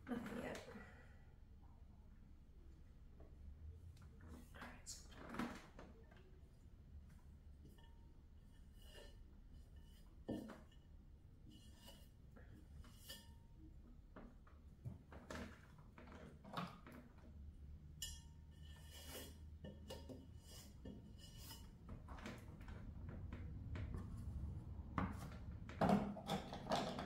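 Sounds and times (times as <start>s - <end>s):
tools scraping and clinking on metal: 17.9s - 22.7s.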